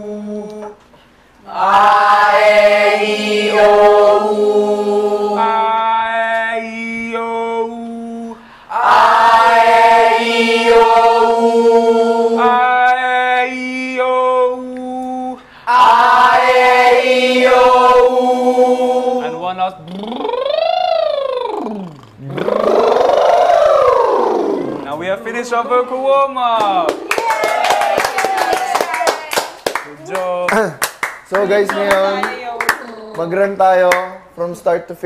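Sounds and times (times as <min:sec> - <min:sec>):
group singing vowels: 0:00.0 - 0:25.9.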